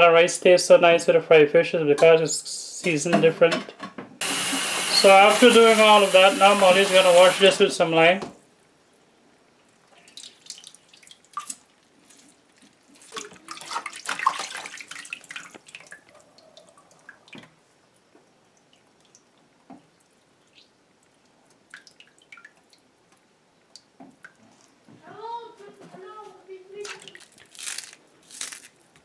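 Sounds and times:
water drips and small splashes: 8.6s - 24.9s, 26.8s - 27.9s
hands splashing water in bowl: 13.0s - 16.0s.

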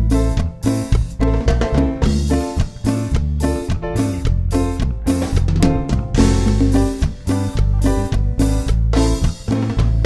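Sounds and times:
congas and drums: 0.0s - 10.0s
latin band music: 0.0s - 10.0s
low bass line: 4.2s - 9.0s.

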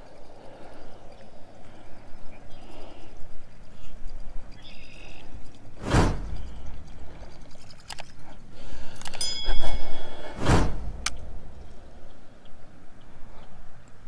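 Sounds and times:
wind on microphone: 0.0s - 8.6s, 9.2s - 13.8s
fishing rod swishing: 5.3s - 8.4s, 9.2s - 11.4s.

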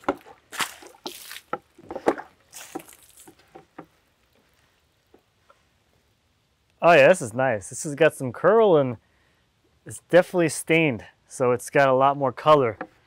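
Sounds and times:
water splashing onto log: 0.0s - 3.9s.

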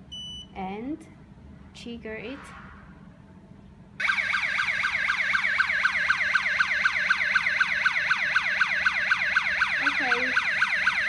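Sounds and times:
electronic alarm siren yelping: 4.0s - 11.0s.

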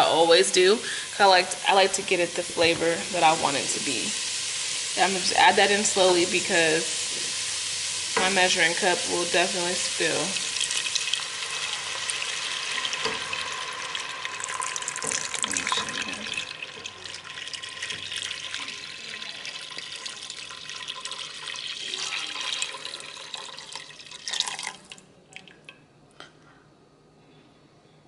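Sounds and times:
broth pouring into a pot: 0.8s - 25.5s.

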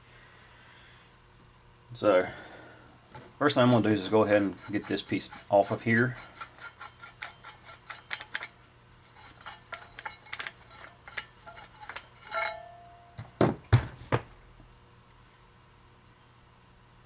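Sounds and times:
metal shaft scraping in tube: 3.8s - 12.8s
metal ring: 4.4s - 13.4s.

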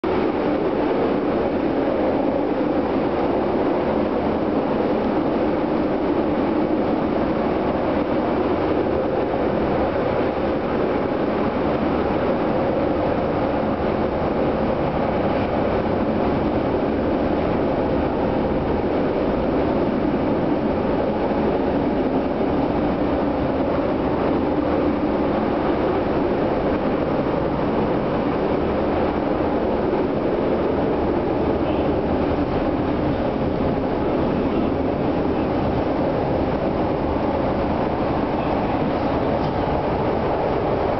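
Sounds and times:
train wheels rumbling on rails: 0.0s - 40.9s.

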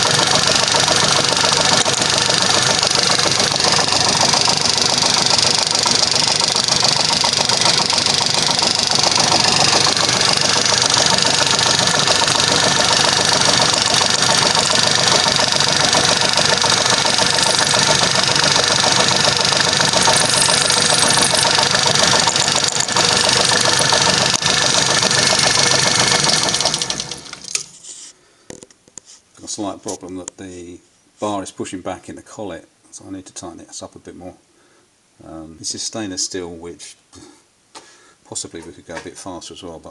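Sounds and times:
metal lathe running: 0.0s - 27.7s
drill boring into steel: 0.0s - 27.8s.

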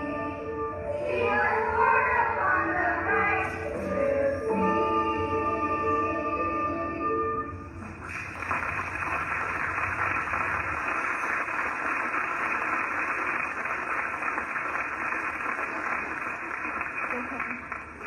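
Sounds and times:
music: 0.0s - 9.7s.

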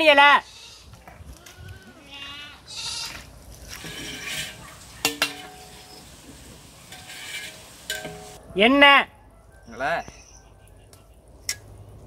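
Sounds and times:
goat bleating: 0.0s - 3.3s
metal cooking pots clinking: 3.9s - 8.4s.

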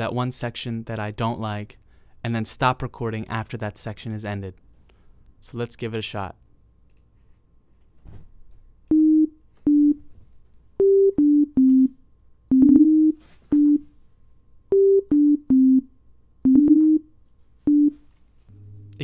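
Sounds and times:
synth tone melody: 10.8s - 13.8s, 14.7s - 17.1s.

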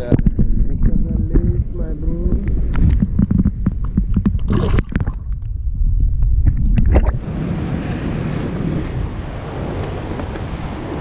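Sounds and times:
wind on the shore: 0.0s - 11.0s
water churning and bubbling underwater: 2.1s - 7.3s.

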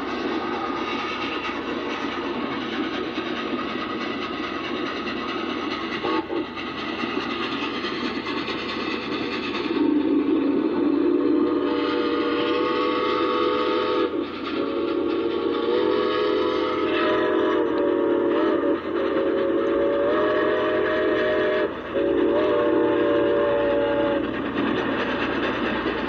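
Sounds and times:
train running noise: 0.0s - 26.0s
steam whistle chord: 10.9s - 24.2s.

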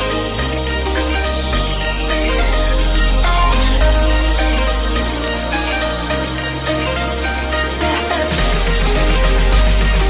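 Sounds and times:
background music with deep bass: 0.0s - 10.0s.

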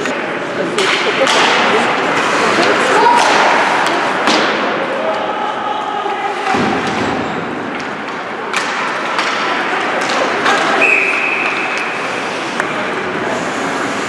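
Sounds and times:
stick hitting puck: 0.1s - 1.7s, 2.6s - 4.8s, 6.5s - 12.8s
referee's whistle: 10.8s - 11.5s
skates hissing on ice: 11.5s - 14.0s.

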